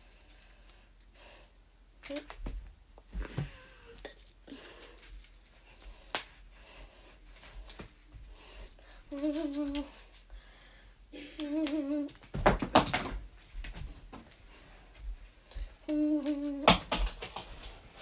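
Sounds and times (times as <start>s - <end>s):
girl humming: 8.8s - 10.2s, 11.1s - 12.3s, 15.6s - 16.8s.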